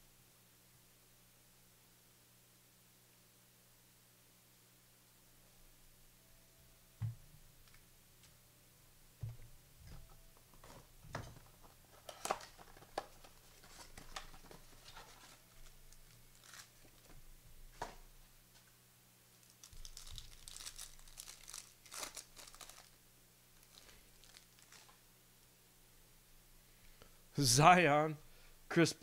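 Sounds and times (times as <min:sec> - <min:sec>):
wrappers crinkling: 0:11.4 - 0:17.1, 0:19.4 - 0:23.0, 0:23.6 - 0:25.0
card packs being torn open: 0:11.9 - 0:17.1, 0:19.4 - 0:23.0, 0:23.6 - 0:25.0.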